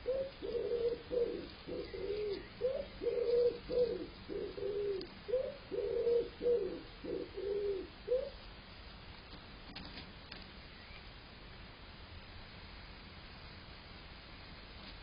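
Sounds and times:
pigeon cooing: 0.0s - 8.4s.

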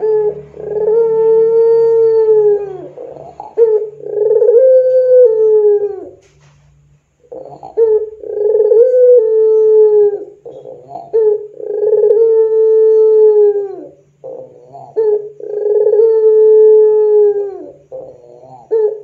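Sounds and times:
dove cooing: 0.0s - 6.4s, 7.2s - 19.0s.

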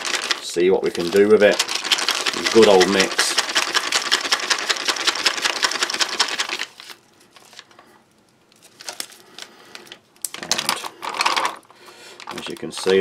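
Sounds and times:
plastic pouch being shaken: 0.0s - 7.7s, 12.2s - 13.0s.

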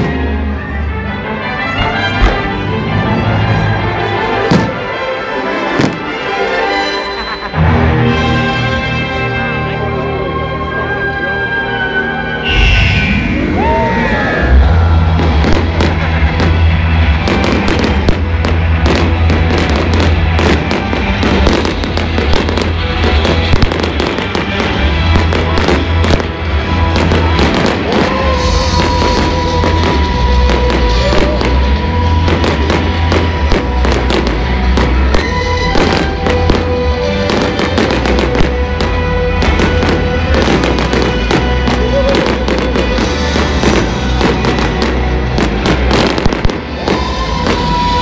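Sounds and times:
loud music: 0.0s - 48.0s
deep fireworks booms: 5.8s - 6.2s, 12.5s - 48.0s
fireworks bursting and crackling: 14.5s - 48.0s.

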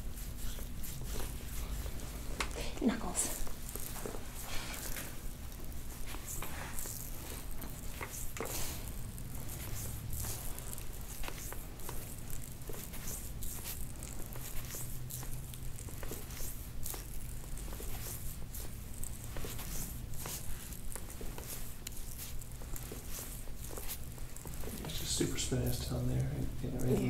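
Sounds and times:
low steady hum: 0.0s - 27.0s
fingers rubbing oiled skin: 3.3s - 27.0s.

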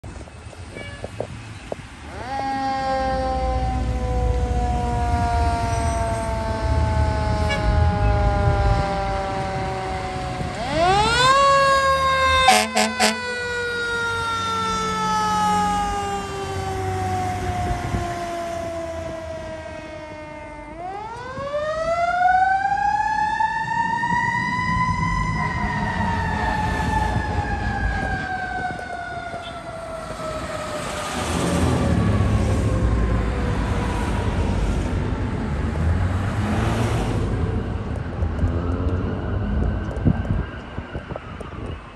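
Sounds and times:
truck engine rumble: 0.0s - 41.9s
fire engine siren wailing: 2.0s - 41.9s
air horn blasts: 5.6s - 9.0s, 12.4s - 13.4s.

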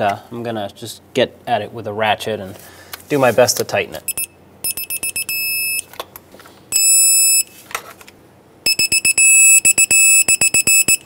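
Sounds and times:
torque wrench beeping: 4.1s - 5.9s, 8.7s - 11.0s.

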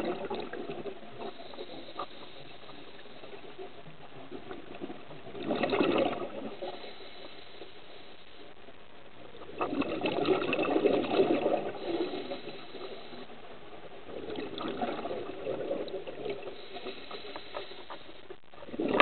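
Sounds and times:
air bubbling underwater: 0.0s - 1.3s, 4.7s - 6.6s, 9.5s - 12.3s, 14.2s - 16.6s, 18.6s - 19.0s.

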